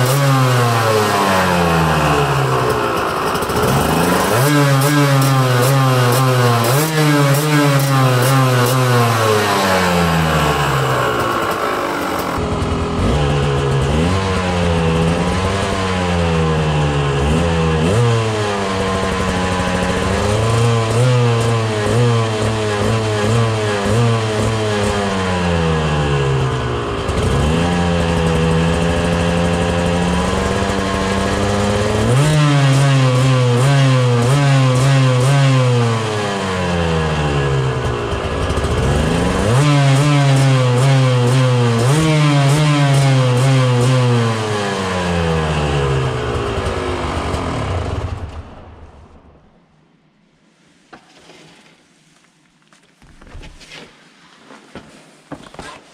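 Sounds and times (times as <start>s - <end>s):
dirt bike engine revving: 0.0s - 48.8s.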